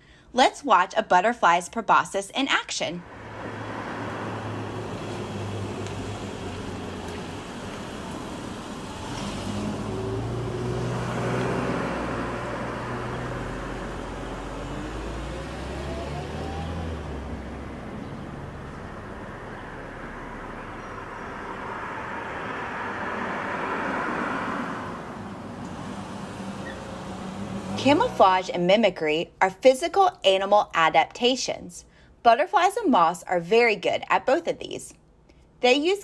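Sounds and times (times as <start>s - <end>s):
traffic passing: 2.8s - 29.4s
vehicle engine hum: 3.0s - 28.6s.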